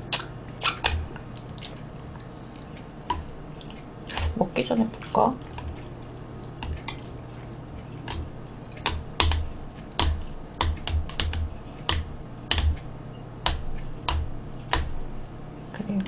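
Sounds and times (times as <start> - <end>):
chopsticks clicking against bowls: 6.6 - 7.1, 8.0 - 9.4.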